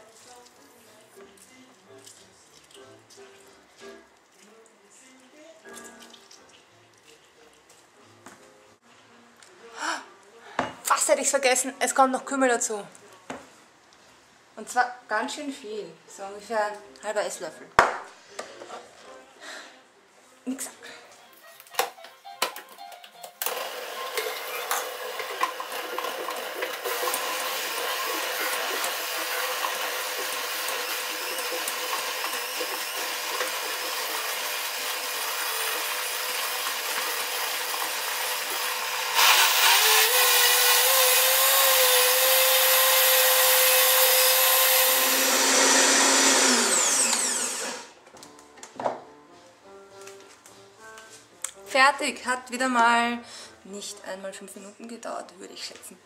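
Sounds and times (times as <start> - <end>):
blender motor running: 23.4 - 48.0.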